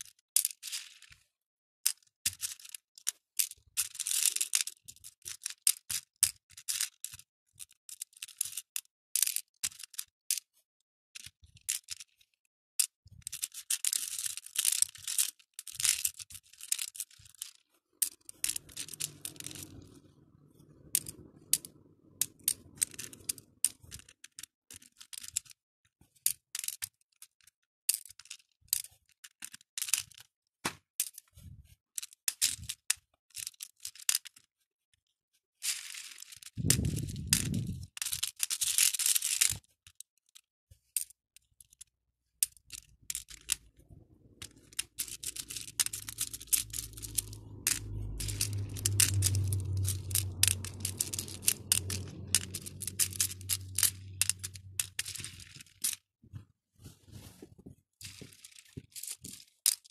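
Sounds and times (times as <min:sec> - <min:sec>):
plastic beads clicking: 0:01.8 - 0:10.6, 0:11.2 - 0:12.2, 0:12.8 - 0:25.6, 0:26.2 - 0:27.0, 0:27.9 - 0:30.3, 0:32.0 - 0:34.4, 0:35.6 - 0:56.0, 0:58.0 - 0:59.9.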